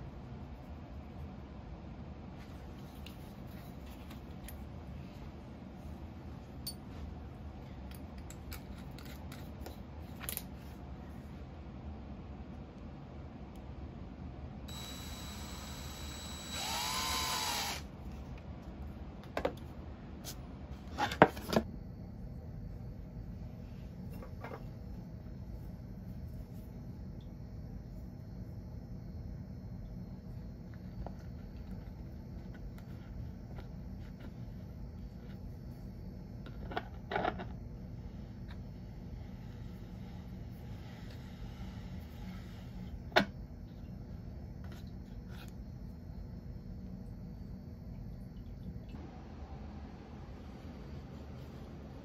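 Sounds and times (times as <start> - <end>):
steady low hum: 0.0 - 52.0
power drill boring into plastic: 14.7 - 17.8.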